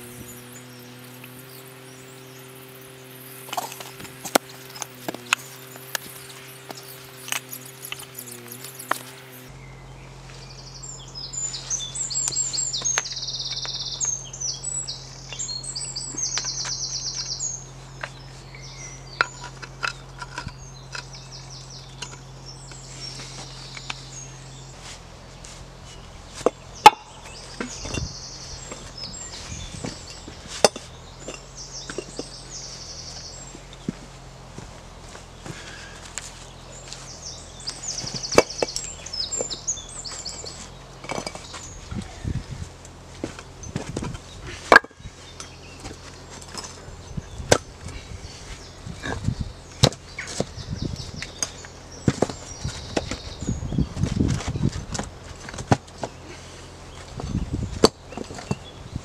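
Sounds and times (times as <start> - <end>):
birds chirping trills: 0.0 - 59.0
low hum: 0.0 - 59.0
stones knocking and scraping: 3.3 - 9.4, 19.2 - 21.2, 28.7 - 32.4, 37.7 - 42.1, 42.8 - 46.8, 51.2 - 53.3, 54.0 - 56.2, 57.0 - 58.7.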